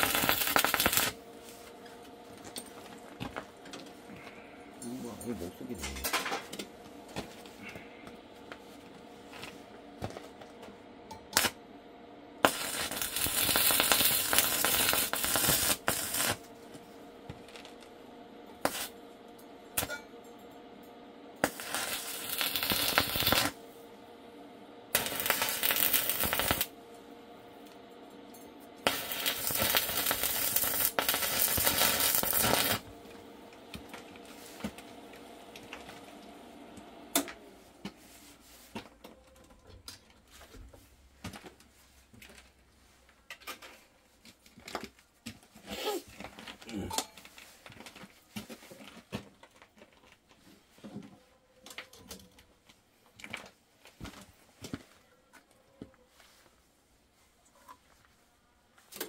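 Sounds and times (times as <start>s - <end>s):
electric arc welding hiss: 0.0s - 1.2s, 11.3s - 11.6s, 12.4s - 16.5s, 18.6s - 19.0s, 21.4s - 23.6s, 24.9s - 26.8s, 28.8s - 33.0s
faint steady hum: 0.0s - 59.0s.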